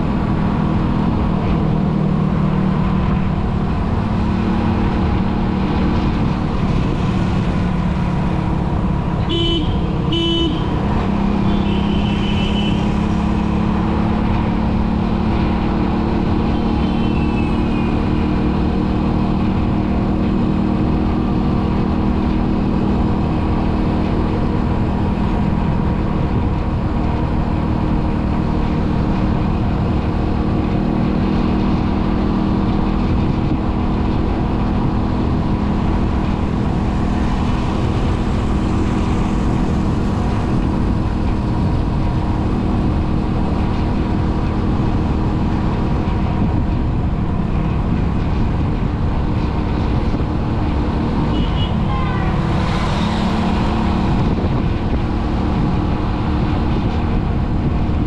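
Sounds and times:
vehicle engine and road noise: 0.0s - 58.0s
car horn toots: 9.2s - 10.7s, 51.3s - 52.5s.

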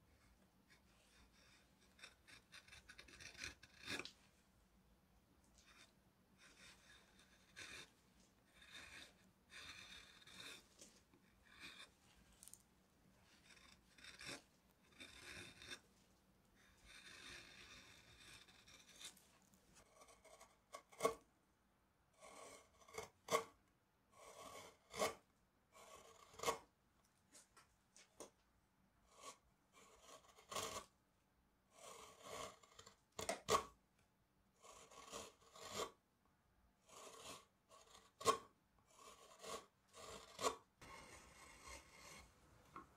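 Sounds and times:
gouge scraping wood: 0.7s - 4.2s, 5.6s - 12.6s, 13.2s - 16.0s, 16.6s - 21.3s, 22.2s - 23.6s, 24.2s - 26.7s, 29.0s - 31.0s, 31.7s - 33.8s, 34.6s - 36.0s, 36.8s - 42.9s.

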